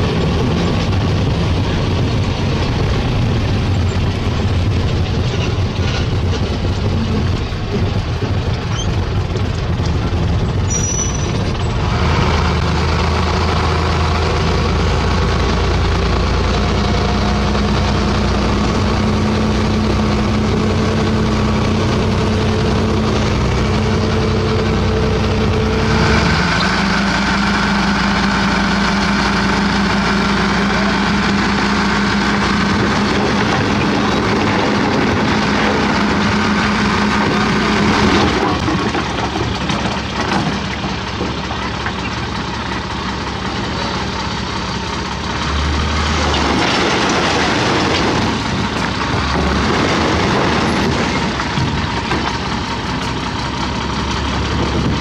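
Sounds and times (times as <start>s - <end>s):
diesel truck engine: 0.0s - 55.0s
rocks sliding and rattling: 30.6s - 43.0s, 46.0s - 53.4s.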